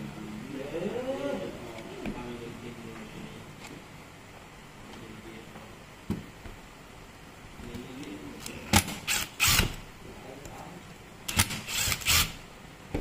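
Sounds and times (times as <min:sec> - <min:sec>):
cordless driver running in bursts: 0:09.0 - 0:09.8, 0:11.3 - 0:12.4.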